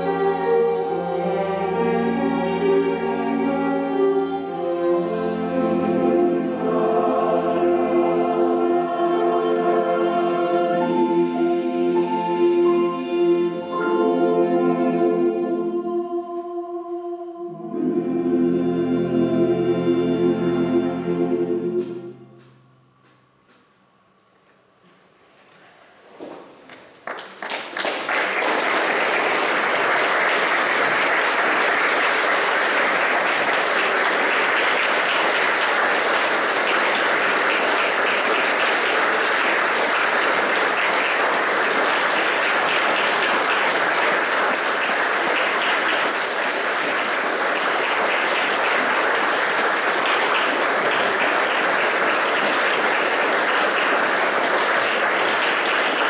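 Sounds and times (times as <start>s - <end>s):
audience applauding: 26.7s - 56.0s.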